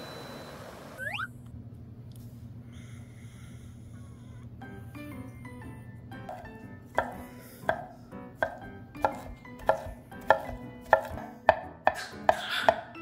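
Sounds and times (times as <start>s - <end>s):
knife chopping on wooden board: 6.3s - 12.9s.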